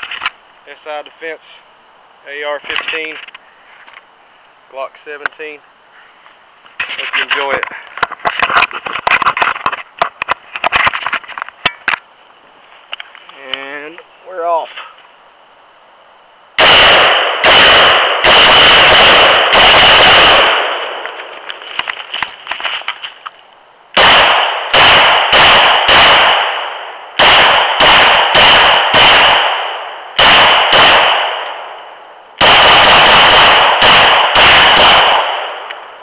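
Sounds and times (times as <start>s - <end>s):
gunshots: 16.6s - 21.0s, 24.0s - 31.7s, 32.4s - 35.7s.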